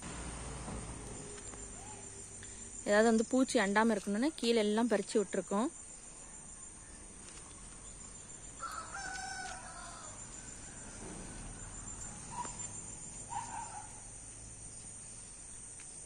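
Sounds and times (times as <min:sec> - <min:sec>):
high-pitched insect drone: 0:00.0 - 0:04.3, 0:05.5 - 0:15.6
rooster crowing: 0:08.4 - 0:12.5.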